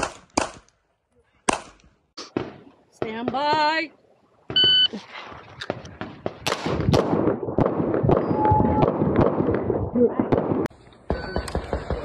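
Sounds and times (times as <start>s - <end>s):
rapid pistol shots with echo: 0.0s - 0.6s, 5.7s - 12.0s.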